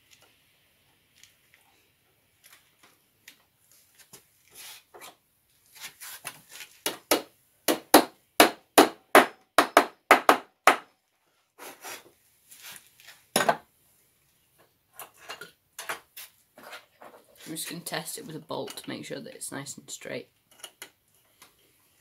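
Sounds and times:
hammer knock on wooden stool: 6.9s - 10.9s.

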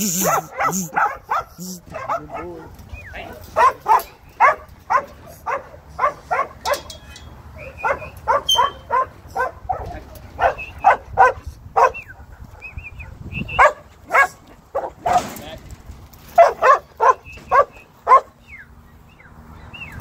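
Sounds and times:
dog barking: 0.0s - 2.7s, 3.5s - 6.9s, 7.6s - 15.2s, 16.3s - 18.4s.

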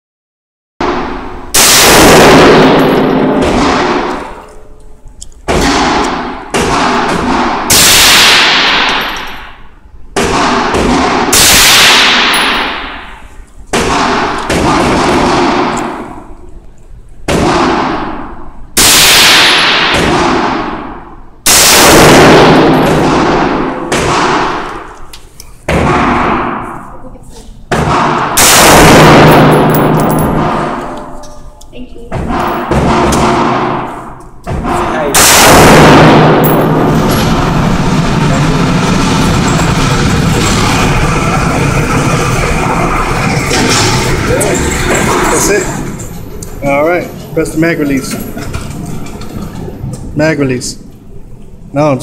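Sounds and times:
rifle shots echoing: 0.8s - 4.6s, 5.4s - 16.4s, 17.3s - 25.0s, 25.7s - 26.9s, 27.7s - 31.3s, 32.2s - 41.2s.

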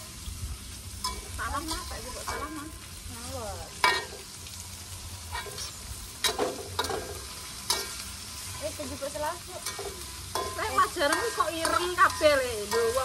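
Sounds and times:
vegetables sizzling in a wok: 0.0s - 13.0s
metal spatula scraping a pan: 1.0s - 2.8s, 3.7s - 4.4s, 5.3s - 13.0s.

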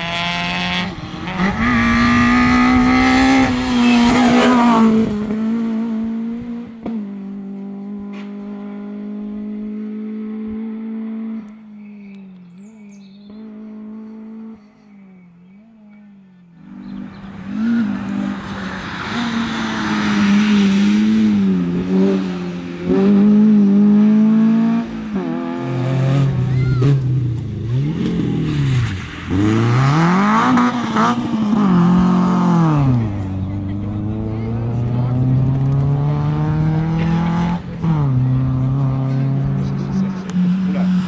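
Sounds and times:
rally cars revving hard: 0.0s - 11.8s, 12.6s - 14.8s, 16.6s - 41.0s
faint car engine: 0.0s - 41.0s
tyres hissing on loose road: 16.7s - 22.9s.

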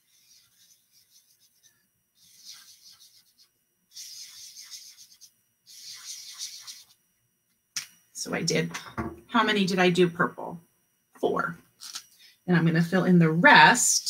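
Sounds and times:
marker scribbling on paper: 0.0s - 7.0s.

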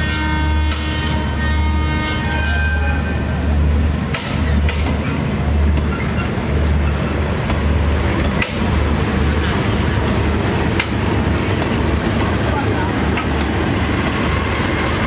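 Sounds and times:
train rumbling: 0.0s - 15.0s
wheels clacking over rail joints: 4.0s - 15.0s.

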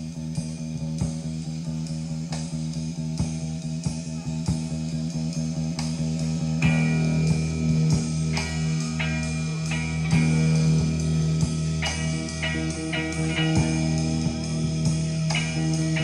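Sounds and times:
electric guitar and bass rock: 0.0s - 16.0s
high held tone: 3.9s - 16.0s.

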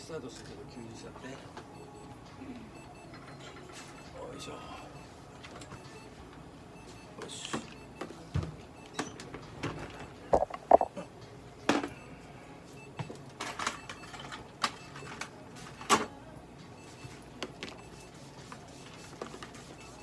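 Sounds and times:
instruments clicking and knocking: 9.6s - 10.9s.

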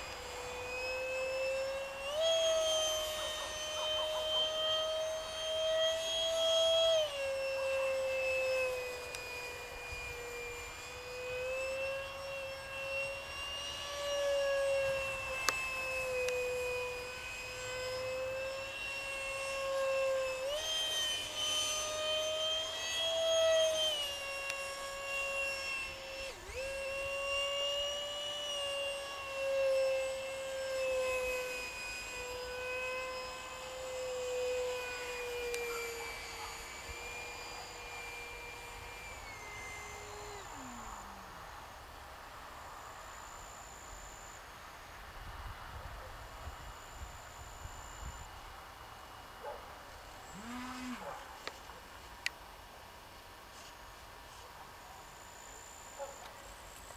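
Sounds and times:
model jet fan whine: 0.0s - 56.9s.

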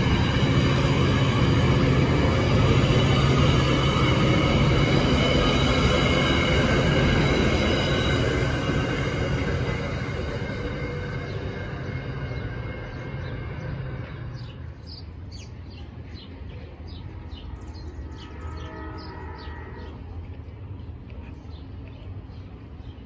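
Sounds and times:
train wheel and rail rumble: 0.0s - 23.0s
birds chirping: 2.7s - 23.0s.

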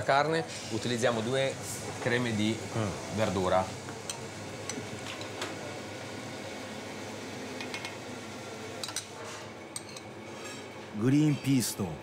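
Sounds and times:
kitchen fan hiss: 0.0s - 9.6s
metal spoon clinking on glass: 9.8s - 10.1s.

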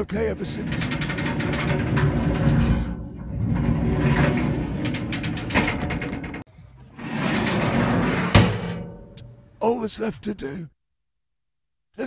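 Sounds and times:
drawer rumbling on runners: 0.4s - 9.3s.

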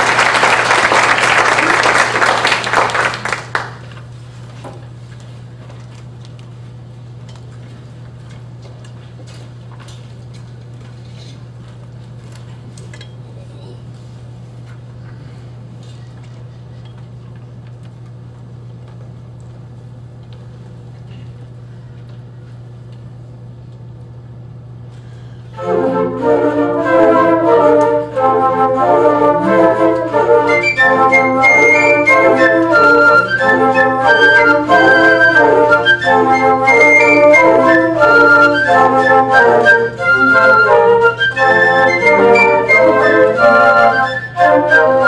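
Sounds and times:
low room hum: 0.0s - 45.0s
flute ensemble playing: 25.5s - 45.0s.

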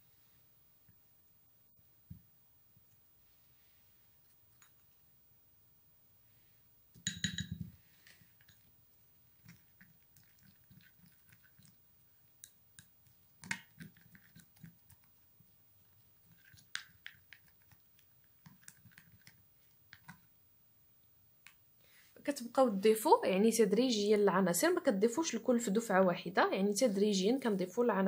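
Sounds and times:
ringing clink of glass: 7.0s - 7.7s.

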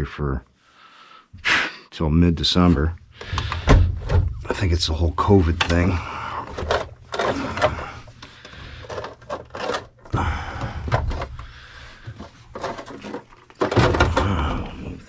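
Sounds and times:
plastic pump being handled: 3.2s - 4.4s, 5.4s - 15.0s.

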